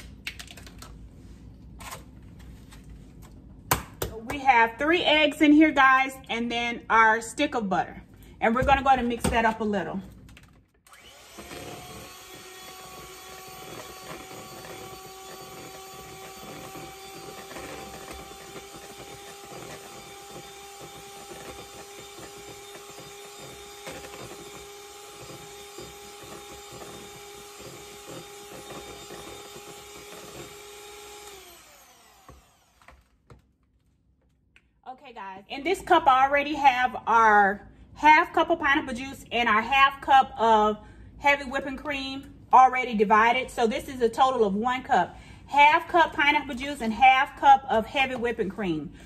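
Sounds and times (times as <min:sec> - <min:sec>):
electric hand mixer whine: 0:10.9 - 0:33.1.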